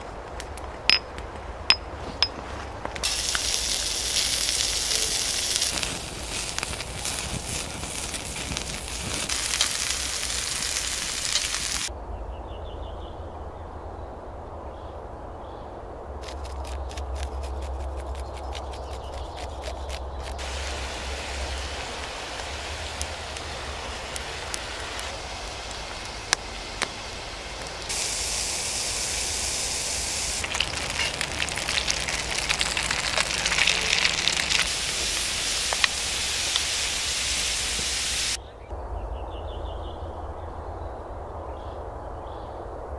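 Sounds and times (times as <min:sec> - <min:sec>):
wood fire crackling and hissing: 0:00.0 - 0:11.9, 0:16.1 - 0:38.4.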